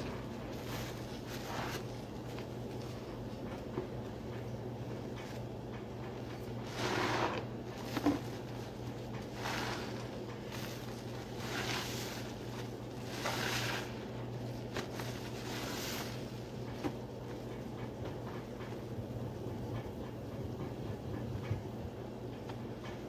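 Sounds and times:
soapy sponge squishing: 0:00.0 - 0:03.0, 0:06.6 - 0:16.9
steady low hum: 0:00.0 - 0:23.0.

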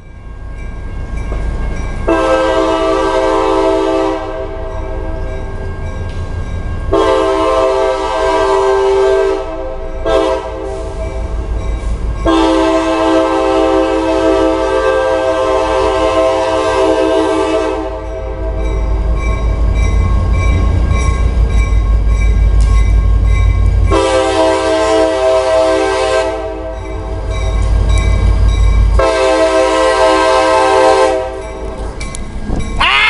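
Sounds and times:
locomotive air horn blasts: 0:02.1 - 0:04.7, 0:06.9 - 0:11.2, 0:12.2 - 0:18.6, 0:23.9 - 0:26.9, 0:29.0 - 0:31.5.

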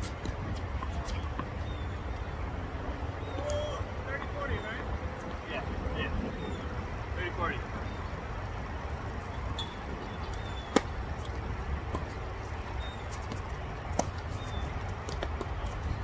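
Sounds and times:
racket hitting tennis ball: 0:10.3 - 0:12.2, 0:13.1 - 0:14.4.

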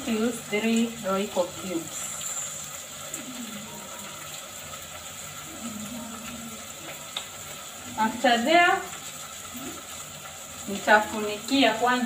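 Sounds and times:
vegetables sizzling in a pot: 0:00.0 - 0:12.0.

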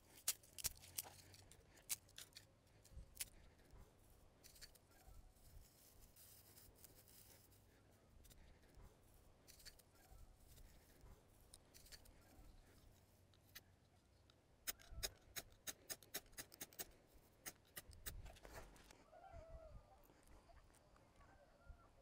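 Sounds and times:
small sticks clicking together: 0:00.1 - 0:02.5, 0:14.2 - 0:18.2.

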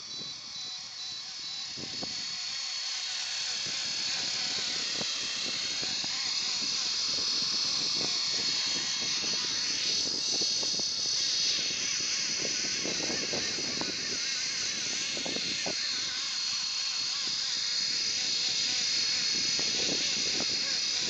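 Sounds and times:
model helicopter high-pitched whine: 0:00.0 - 0:21.0.

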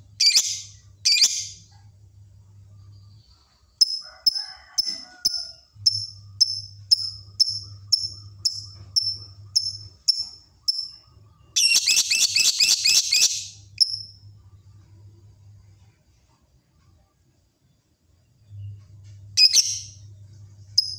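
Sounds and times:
lovebird chirping: 0:00.2 - 0:01.6, 0:04.8 - 0:14.2, 0:19.4 - 0:20.0
lovebird rapid chattering: 0:11.6 - 0:14.1.

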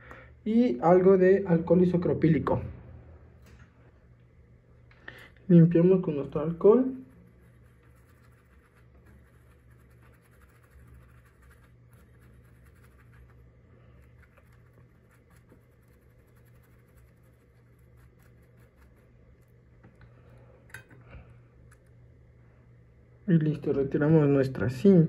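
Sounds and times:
low steady hum: 0:00.0 - 0:25.0
small brush scratching: 0:06.3 - 0:19.6.

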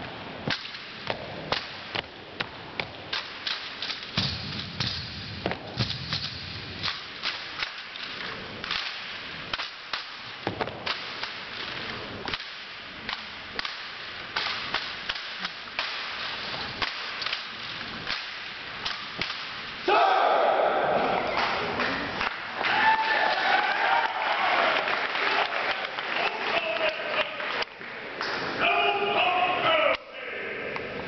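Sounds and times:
hands slapping drill rifles: 0:00.5 - 0:19.6.

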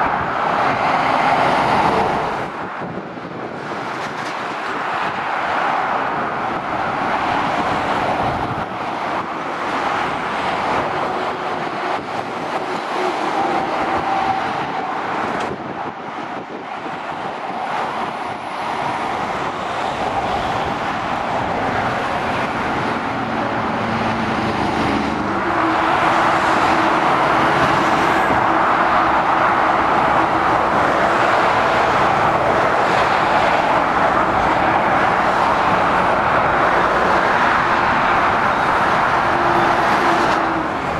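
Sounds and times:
car tyres rushing: 0:00.0 - 0:40.9
diesel lorries humming: 0:00.0 - 0:40.9.

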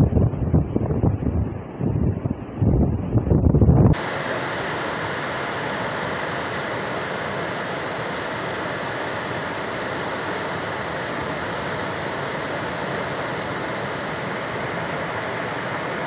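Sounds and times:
flood water roaring down river: 0:03.9 - 0:16.0.

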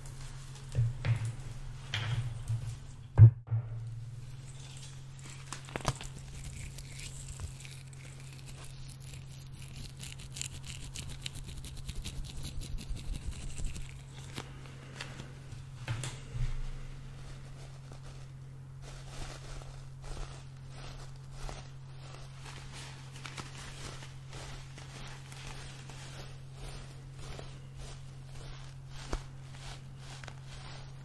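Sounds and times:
low electrical hum: 0:00.0 - 0:31.0
knock against microphone: 0:03.2 - 0:03.8
plastic packaging crinkling: 0:04.4 - 0:15.6, 0:16.4 - 0:31.0.

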